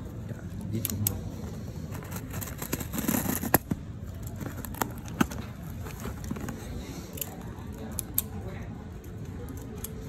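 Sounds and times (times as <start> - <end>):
packaging crinkling and rustling: 1.9 - 6.8.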